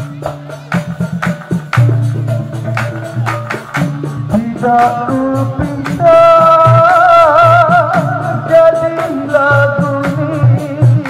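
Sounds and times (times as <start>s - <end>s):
drums and percussion: 0.0s - 11.0s
man singing into a microphone: 4.3s - 11.0s.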